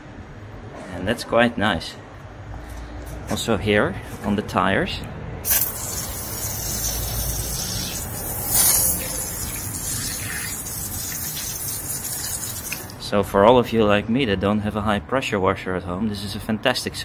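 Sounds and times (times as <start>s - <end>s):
foam sprayer hissing: 5.5s - 12.9s.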